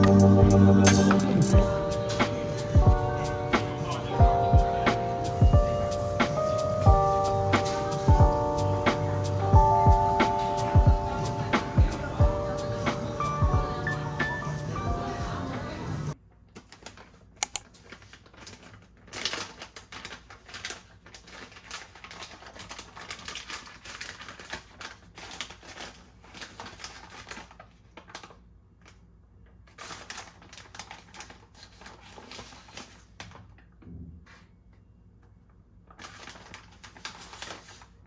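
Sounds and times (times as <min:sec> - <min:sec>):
plastic bag crinkling: 0:16.5 - 0:29.0, 0:29.7 - 0:33.6, 0:35.9 - 0:38.0
sharp click: 0:17.4 - 0:17.6.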